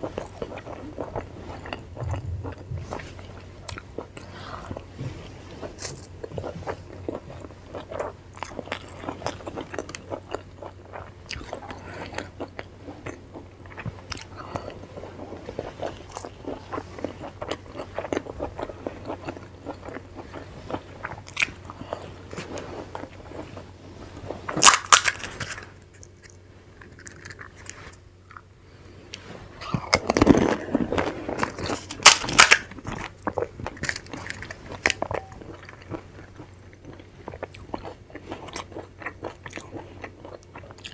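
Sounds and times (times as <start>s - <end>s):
crisp shells cracking: 24.5s - 27.7s, 31.4s - 32.8s, 33.7s - 35.2s.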